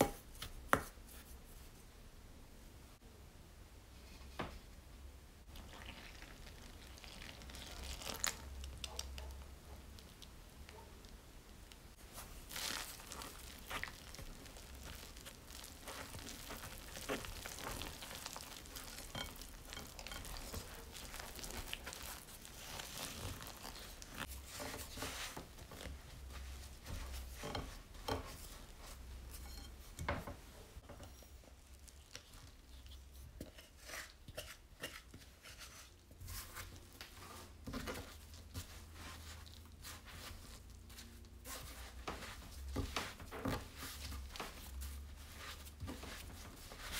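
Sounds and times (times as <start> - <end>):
dough kneaded by hand: 0.0 - 2.0, 5.4 - 46.9
dough stirred in glass bowl: 12.0 - 30.0, 31.0 - 46.9.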